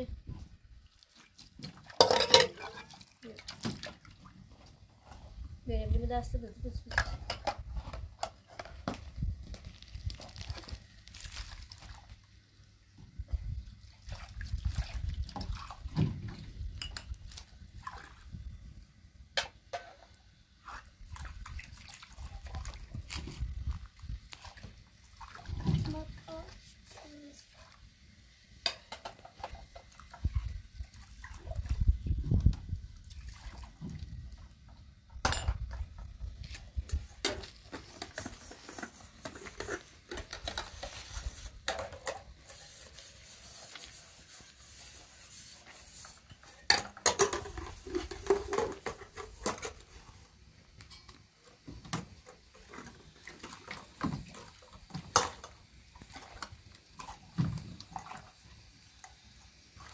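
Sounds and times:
water sloshing and splashing: 0.3 - 5.9, 6.8 - 12.4, 13.1 - 19.0, 19.6 - 50.4, 51.0 - 59.9
metal cups clinking and clattering: 2.0 - 3.0, 16.8 - 17.2, 35.2 - 35.7, 46.5 - 49.8.

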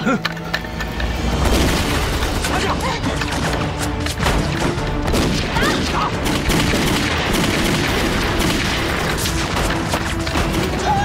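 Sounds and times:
rifle and pistol gunfire: 4.2 - 10.8.

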